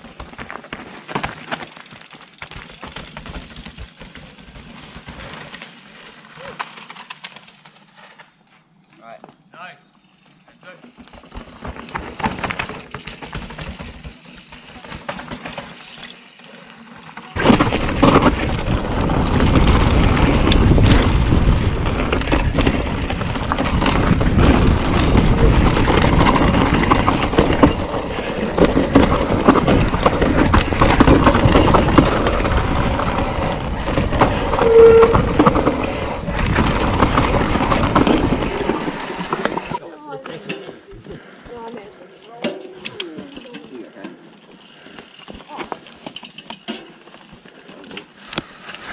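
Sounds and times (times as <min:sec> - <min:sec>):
bike rattling over rocks: 0:00.0 - 0:08.4, 0:10.2 - 0:40.6, 0:42.4 - 0:48.9
bike tyre noise: 0:00.0 - 0:39.8, 0:42.7 - 0:48.9
wind rumble on microphone: 0:17.6 - 0:38.9.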